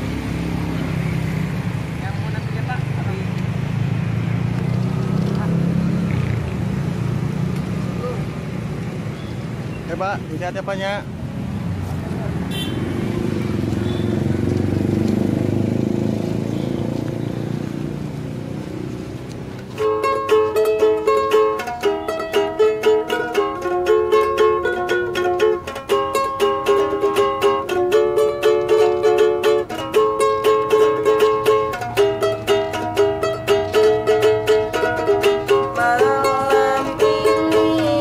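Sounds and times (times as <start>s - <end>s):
ukulele strumming chords: 19.6s - 38.0s.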